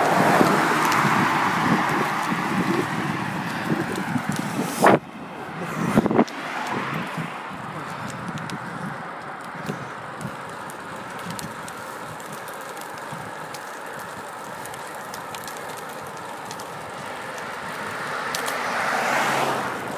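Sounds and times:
bicycle road noise: 0.0s - 19.9s
rushing wind: 0.0s - 19.9s
faint clicks and rattles: 8.0s - 18.6s.

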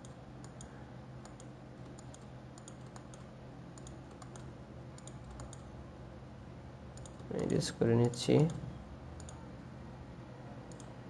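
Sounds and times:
computer clicks: 0.0s - 5.7s, 6.9s - 8.6s, 9.2s - 9.4s, 10.7s - 11.0s
steady low hum: 0.0s - 11.0s.

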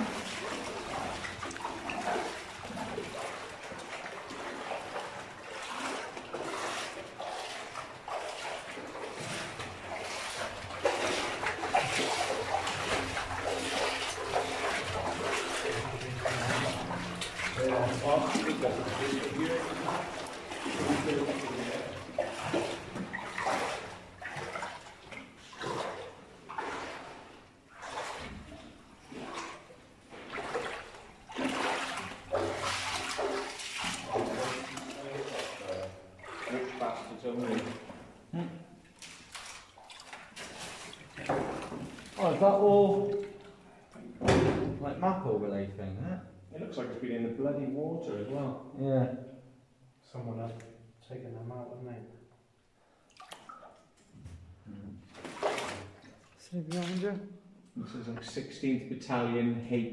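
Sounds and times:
boots splashing through shallow water: 0.0s - 38.2s, 38.9s - 43.7s, 53.1s - 53.8s, 55.0s - 57.1s.

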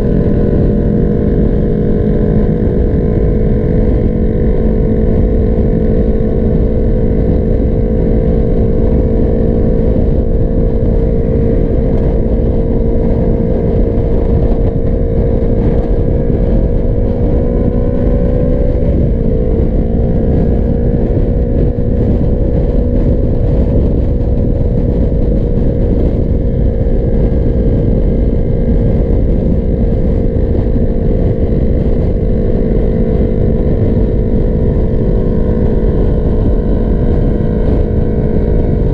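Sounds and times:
motorcycle engine cruising: 0.0s - 38.9s
wind rush on microphone: 0.0s - 38.9s.

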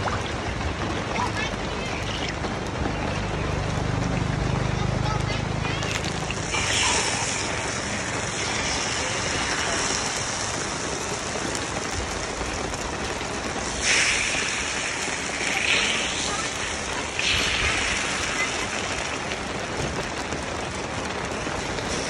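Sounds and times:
batter sizzling in a hot pan: 3.3s - 19.4s, 21.6s - 22.0s.

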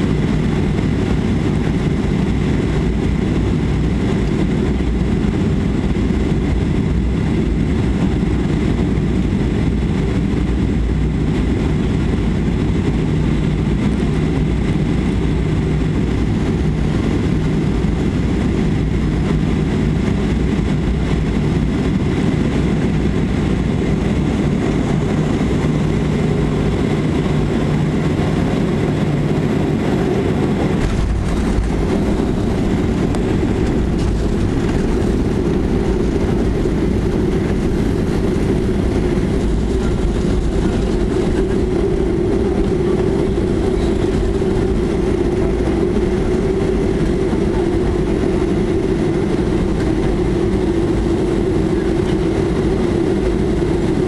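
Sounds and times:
aircraft engines and airflow rumble: 0.0s - 54.0s
landing roll rumble: 30.4s - 45.5s.

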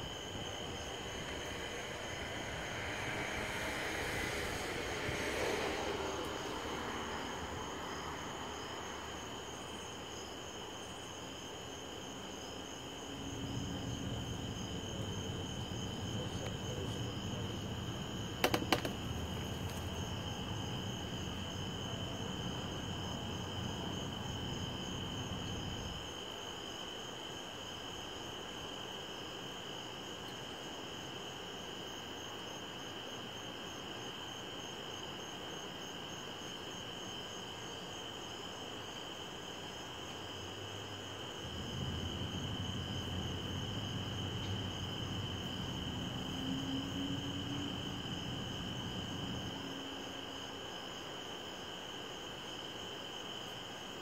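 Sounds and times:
low rumble: 0.0s - 9.2s
crickets trilling: 0.0s - 54.0s.

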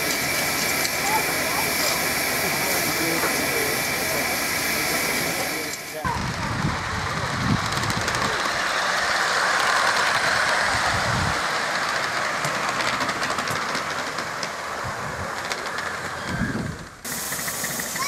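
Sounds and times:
miniature steam train rumbling: 0.0s - 18.0s
wheel clicks over rail joints: 7.6s - 18.0s.

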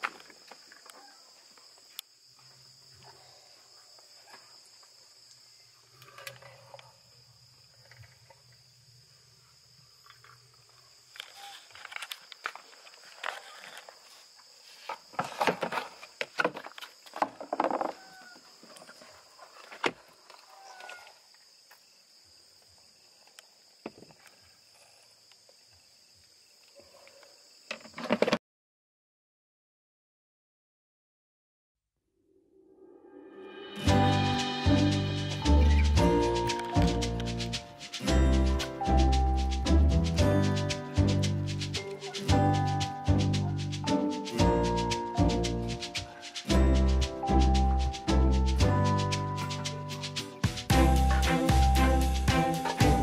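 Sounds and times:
crickets trilling: 0.0s - 28.4s, 33.6s - 53.0s
plastic containers knocking and scraping: 14.9s - 19.1s, 27.7s - 28.4s.

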